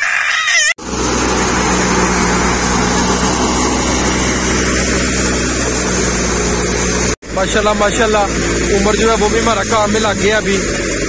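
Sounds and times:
wheat thresher droning: 0:00.8 - 0:11.0.

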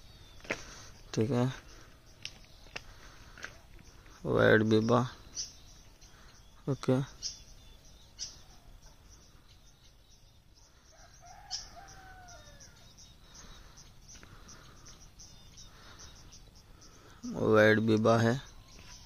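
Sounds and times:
high bird chirps: 0:00.0 - 0:19.0
faint rooster crowing: 0:10.6 - 0:13.0.

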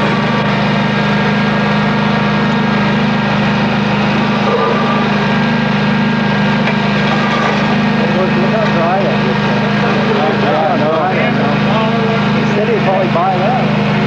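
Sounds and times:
vacuum excavator engine running: 0:00.0 - 0:14.0.

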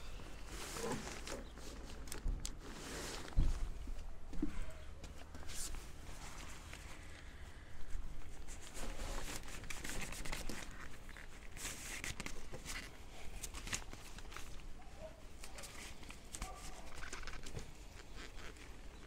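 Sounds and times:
nylon fabric rustling and crinkling: 0:00.0 - 0:19.0
small clicks and scrapes: 0:08.5 - 0:19.0.

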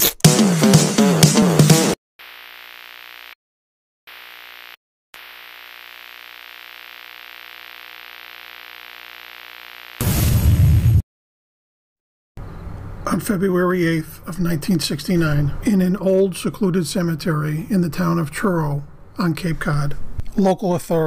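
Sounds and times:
electronic hum with static: 0:02.2 - 0:03.4, 0:04.1 - 0:10.1
loud glitch burst: 0:10.0 - 0:11.0.

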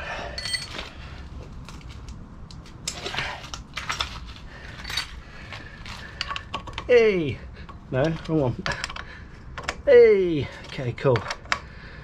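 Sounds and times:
metal hand tools clinking: 0:00.3 - 0:00.8.

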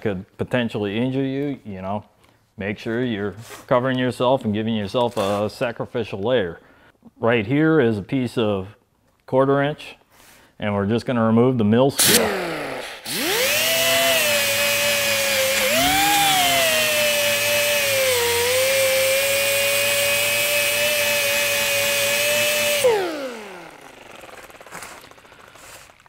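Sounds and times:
angle grinder whining: 0:12.0 - 0:26.0.

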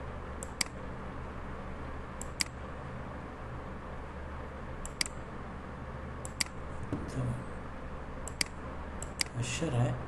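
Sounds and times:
low hum: 0:00.0 - 0:09.3
computer mouse clicks: 0:00.4 - 0:00.8, 0:02.2 - 0:02.6, 0:04.8 - 0:05.2, 0:06.2 - 0:06.6, 0:08.2 - 0:09.4.

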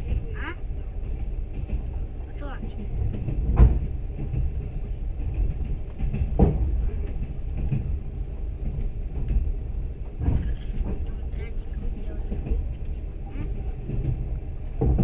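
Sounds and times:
train wheels rumbling on track: 0:00.0 - 0:15.0.

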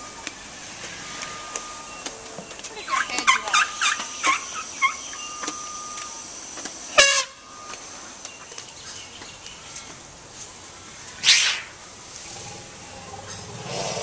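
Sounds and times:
squeaky animal calls: 0:02.8 - 0:05.4.

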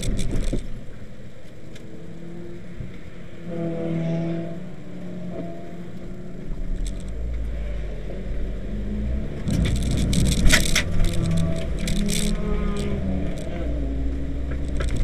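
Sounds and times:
rough hiss with crackles: 0:00.0 - 0:01.9, 0:05.1 - 0:15.0
car engine running: 0:05.6 - 0:15.0
low rumble: 0:05.8 - 0:15.0.

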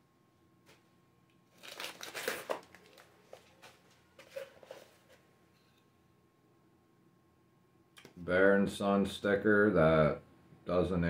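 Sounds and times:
cardboard and paper crinkling: 0:01.5 - 0:05.2.

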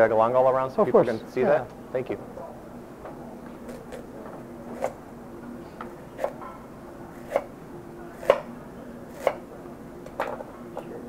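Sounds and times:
knife chopping on wooden board: 0:06.2 - 0:06.5, 0:07.2 - 0:07.5, 0:08.2 - 0:08.5, 0:09.2 - 0:09.4.

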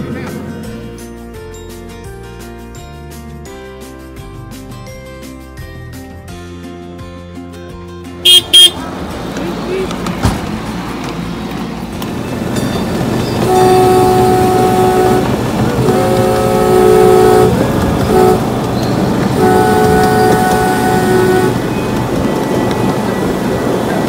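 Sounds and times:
train rumbling on track: 0:00.0 - 0:01.6, 0:08.0 - 0:24.0
train horn blasts: 0:08.2 - 0:08.8, 0:13.4 - 0:22.0.

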